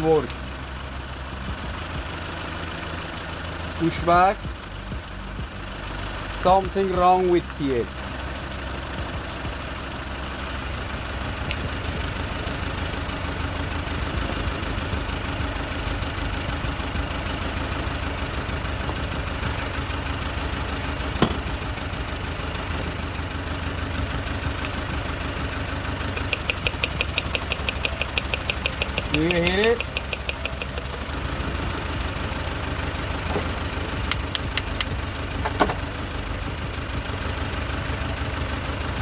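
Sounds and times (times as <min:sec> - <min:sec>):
engine idling rough: 0:00.0 - 0:39.0
fast even ticking: 0:26.0 - 0:31.0
sharp click: 0:26.2 - 0:30.9, 0:34.1 - 0:34.9.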